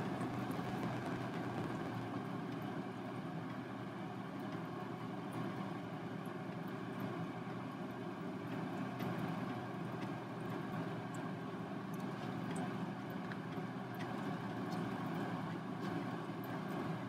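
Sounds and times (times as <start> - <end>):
low mechanical drone: 0.0 - 3.0.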